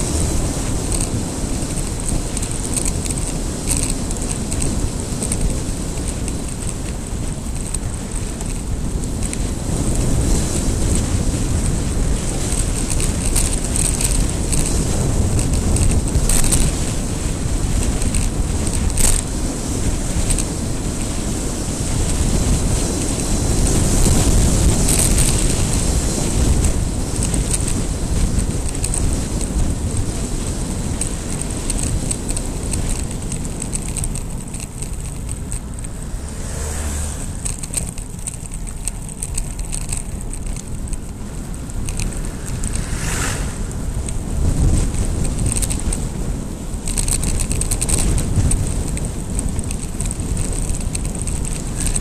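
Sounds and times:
hissy rattles: 0:00.0 - 0:52.0
wind buffeting microphone: 0:00.0 - 0:52.0
car swishing past: 0:35.9 - 0:37.5, 0:42.1 - 0:44.2.

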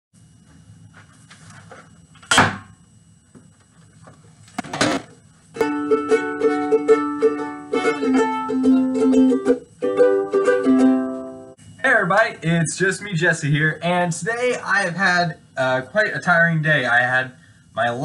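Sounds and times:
ukulele strummed chords: 0:05.6 - 0:11.6.

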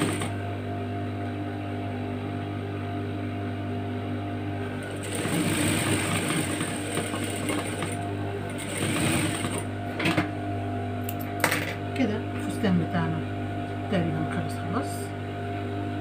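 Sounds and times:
sewing machine stitching: 0:00.0 - 0:00.4, 0:04.8 - 0:09.7.

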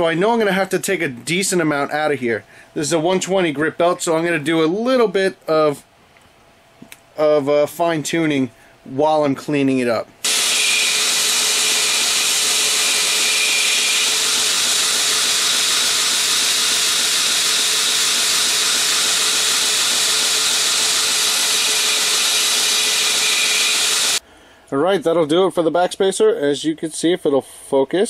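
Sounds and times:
belt grinder grinding metal: 0:10.2 - 0:24.2.

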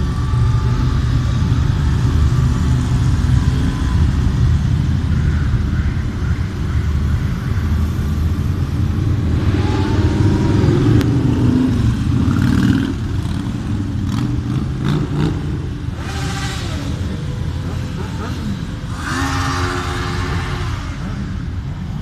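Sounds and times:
motorcycles revving past: 0:08.3 - 0:21.7.

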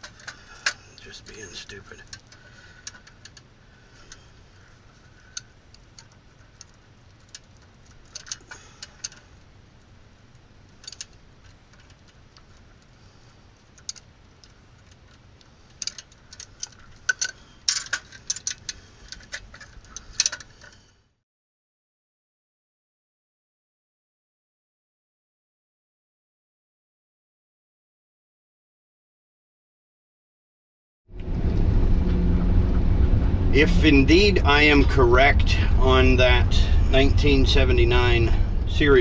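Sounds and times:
hand tools clicking on metal box: 0:05.4 - 0:09.2, 0:13.8 - 0:20.8.

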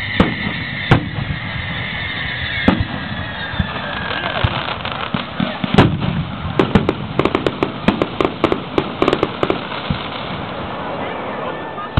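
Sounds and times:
firework shell burst: 0:00.0 - 0:03.8
firework crackling pops: 0:00.0 - 0:11.1.

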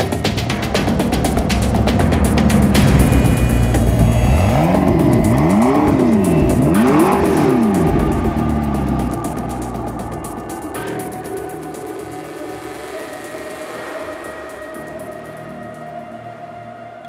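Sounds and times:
car engine revving: 0:00.0 - 0:16.2.

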